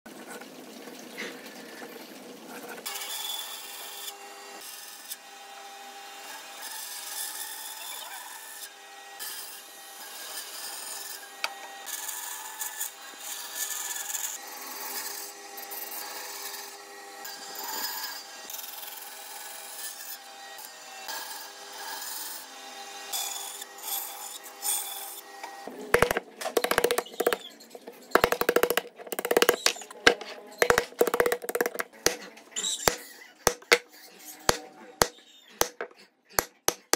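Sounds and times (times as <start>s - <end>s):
chisel cracking wood: 26.0s - 32.2s, 32.9s - 33.8s, 34.5s - 36.9s.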